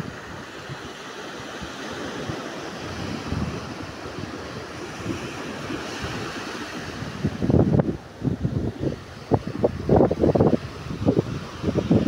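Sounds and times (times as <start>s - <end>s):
waves washing on sandy beach: 0.0s - 12.0s
wind bumps on microphone: 1.5s - 12.0s.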